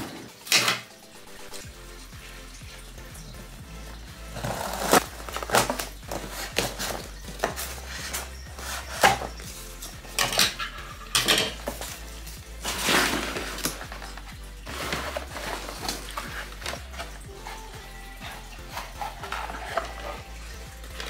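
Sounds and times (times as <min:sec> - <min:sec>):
foam packing rustling scrape: 0:04.4 - 0:09.3, 0:12.6 - 0:17.5.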